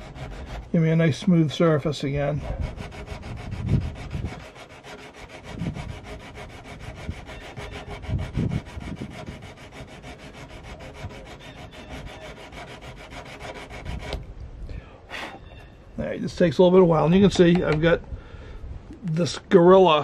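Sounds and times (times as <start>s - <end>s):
hone rubbing on metal: 0.0s - 14.2s.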